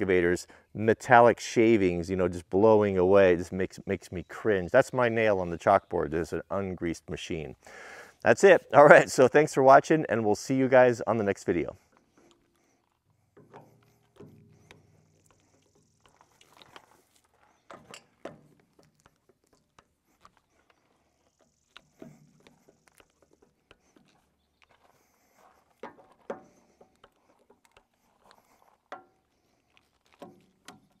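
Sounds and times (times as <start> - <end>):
footsteps on gravel: 11.2 - 31.0.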